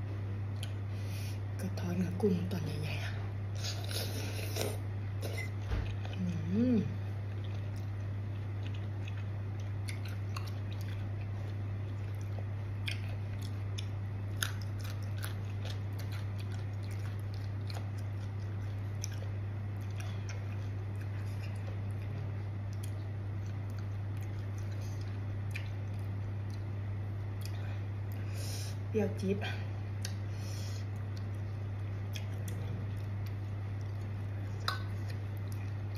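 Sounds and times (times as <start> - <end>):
low electrical hum: 0.0 - 35.9
person chewing crunchy food: 7.1 - 28.4, 30.0 - 35.9.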